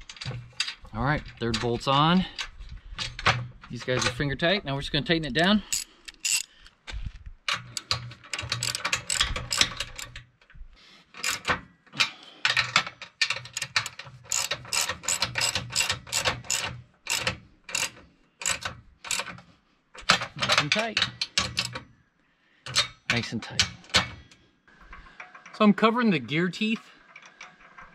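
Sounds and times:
ratchet wrench clicking: 5.7s - 6.5s, 7.7s - 10.2s, 11.2s - 11.5s, 13.5s - 19.3s.

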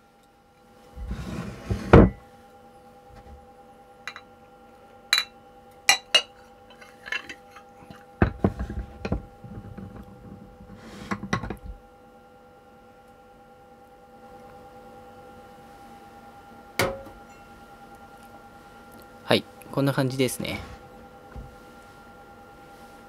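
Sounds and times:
mug rubbing on plate: 1.0s - 2.0s, 10.7s - 11.3s.

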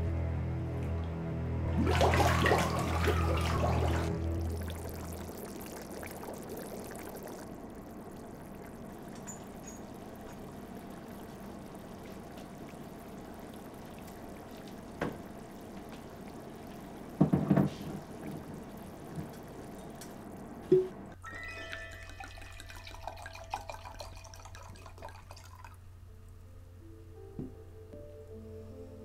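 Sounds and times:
water boiling in a pot: 1.7s - 26.0s
knock: 17.2s - 17.8s.

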